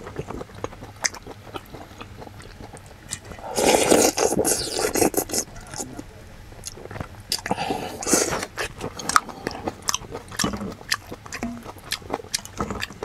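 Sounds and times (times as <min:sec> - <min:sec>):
chewing clicks: 0:00.0 - 0:13.0
slurping hot broth: 0:03.3 - 0:05.5.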